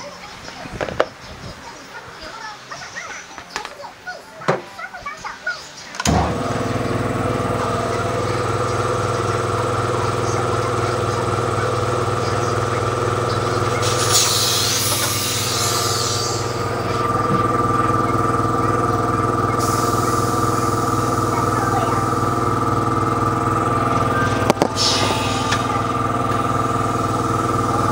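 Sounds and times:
air compressor humming: 6.0s - 27.9s
compressed air hissing: 13.0s - 27.9s.

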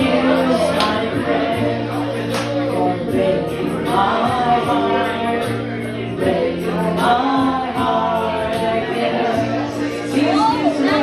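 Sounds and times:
instrumental accompaniment with beat: 0.0s - 11.0s
woman singing into microphone: 6.2s - 11.0s.

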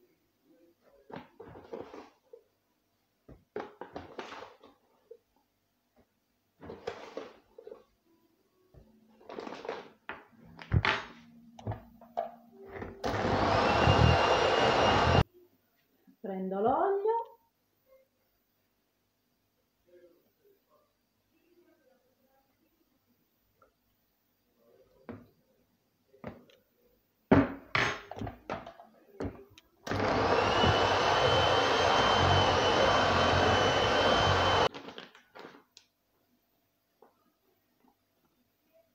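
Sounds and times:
electric hand mixer whirring: 13.0s - 15.2s, 29.9s - 34.7s
kitchen things knocking and clattering: 27.3s - 29.5s.

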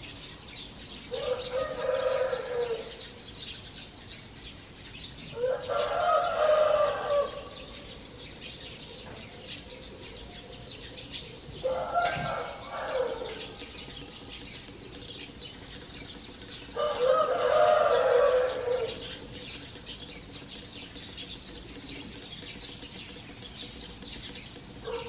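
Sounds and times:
small birds chirping: 0.0s - 25.0s
rooster crowing: 1.2s - 2.9s, 5.4s - 7.5s, 11.6s - 13.4s, 16.8s - 19.0s.

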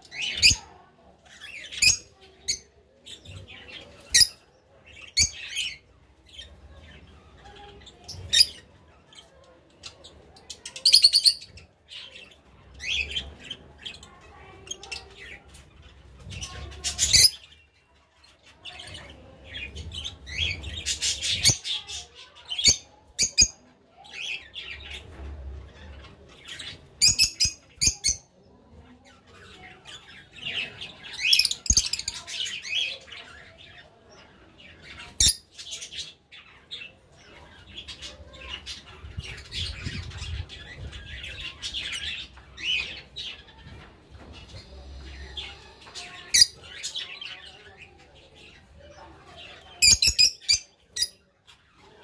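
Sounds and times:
lovebirds chattering: 0.0s - 52.0s.

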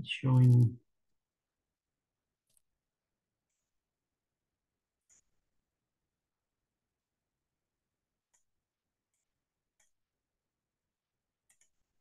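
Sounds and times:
computer mouse click: 11.4s - 11.8s.

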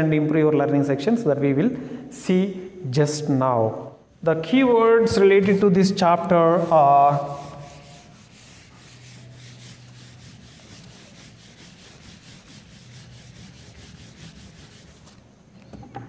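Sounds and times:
eraser rubbing on whiteboard: 6.2s - 15.3s.

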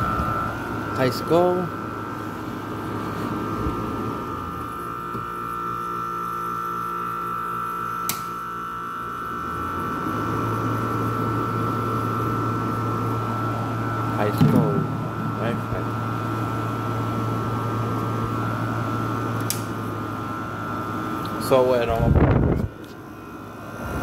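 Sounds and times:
low hum: 0.0s - 6.0s, 8.2s - 21.3s
air conditioner whine: 0.0s - 24.0s.

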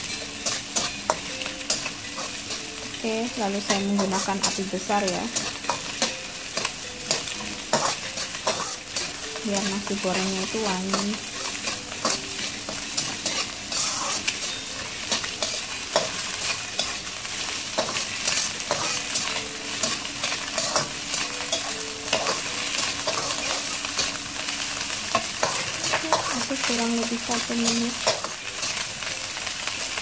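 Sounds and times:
rice sizzling in a wok: 0.0s - 30.0s
metal turner scraping a pan: 3.7s - 24.2s.

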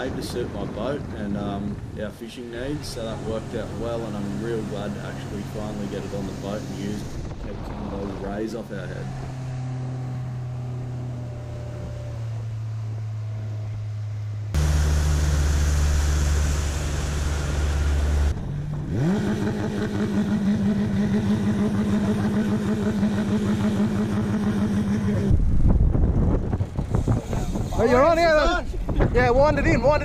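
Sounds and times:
rushing wind and spray: 0.0s - 9.6s, 25.3s - 30.0s
outboard motor droning: 2.6s - 29.0s.

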